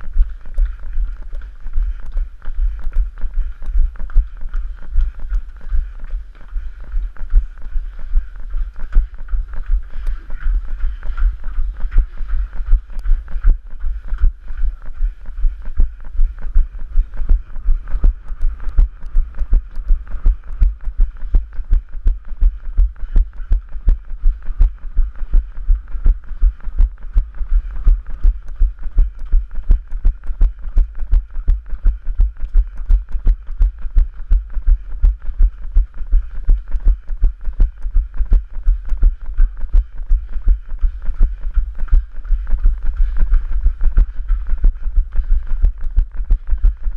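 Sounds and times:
running footsteps on stone: 0.0 - 46.9.

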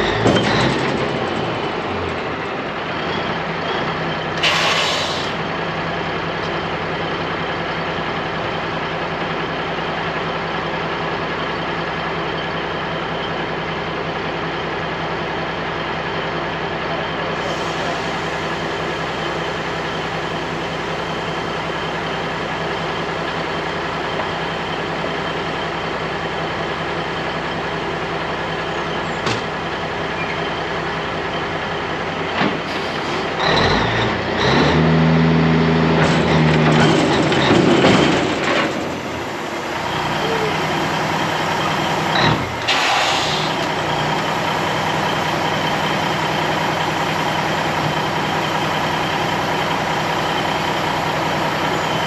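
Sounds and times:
diesel truck engine idling: 0.0 - 52.0
air hiss: 42.7 - 43.6.

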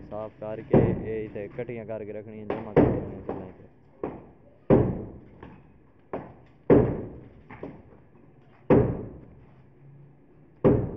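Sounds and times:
hammer blows on concrete: 0.6 - 1.5, 2.4 - 7.9.

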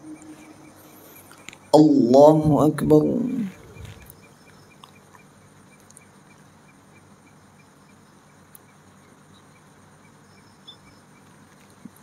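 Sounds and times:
insect chirping: 0.0 - 12.0.

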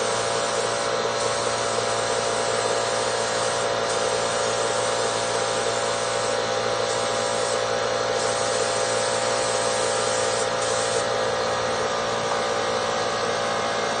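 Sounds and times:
compressed air hissing: 0.0 - 11.1.

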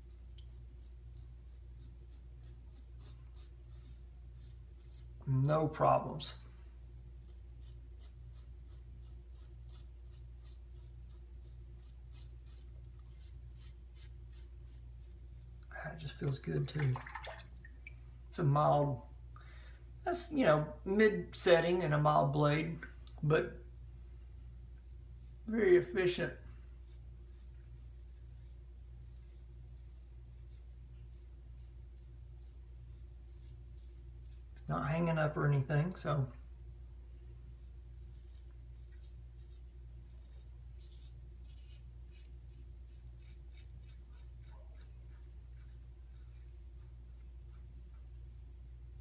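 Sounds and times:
razor scraping stubble: 0.0 - 5.7, 7.2 - 16.4, 24.8 - 26.2, 26.8 - 35.1, 37.4 - 47.6
steady low hum: 0.0 - 49.0.

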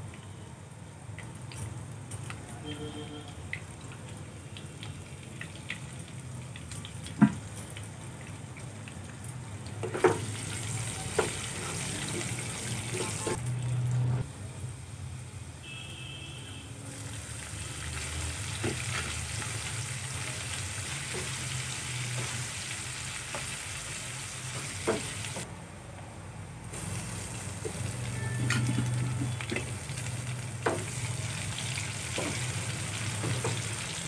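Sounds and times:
potatoes sizzling in hot oil: 9.3 - 13.4, 16.9 - 25.4, 26.8 - 34.0.

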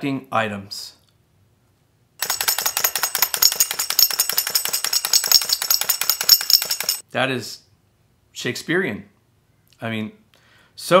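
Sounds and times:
toy monkey clashing cymbals: 2.2 - 7.0.

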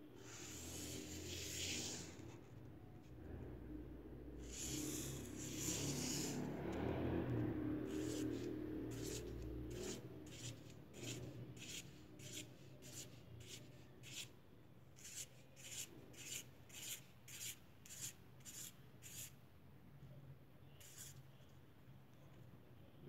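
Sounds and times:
marker scratching on paper: 0.2 - 2.5, 4.4 - 6.7, 7.9 - 14.3, 15.0 - 19.4, 20.8 - 21.2.

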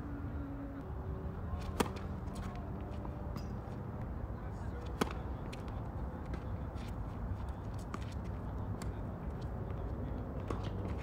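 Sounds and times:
tennis ball bouncing: 1.6 - 3.8, 4.8 - 6.4.

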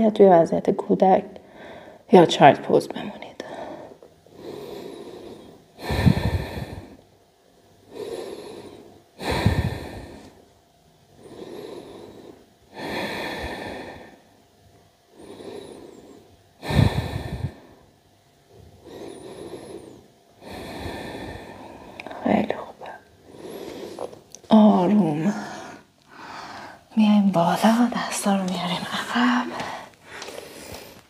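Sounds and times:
person breathing deeply: 1.4 - 2.1, 3.4 - 7.0, 7.8 - 10.4, 11.2 - 14.3, 15.1 - 17.9, 18.8 - 24.2, 25.0 - 26.9, 29.0 - 31.0.

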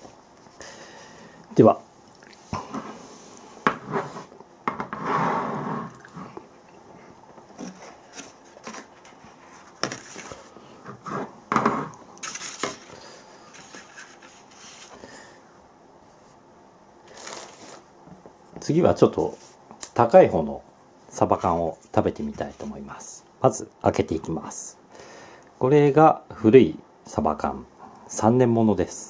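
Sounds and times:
scrape on wooden table: 2.6 - 6.3.

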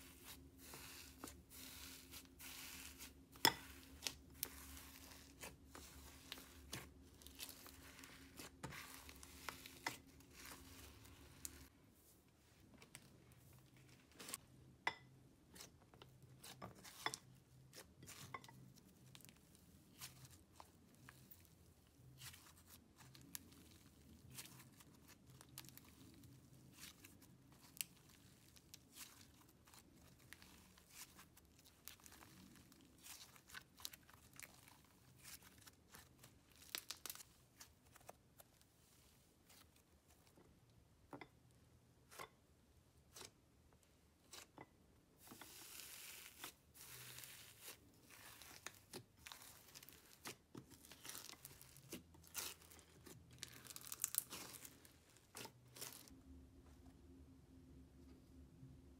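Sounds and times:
slime tearing and crackling: 22.2 - 38.1, 45.5 - 56.1.

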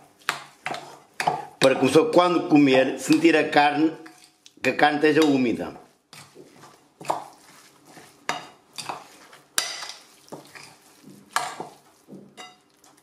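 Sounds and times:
fork scraping minced meat: 0.0 - 1.8, 5.2 - 13.0.

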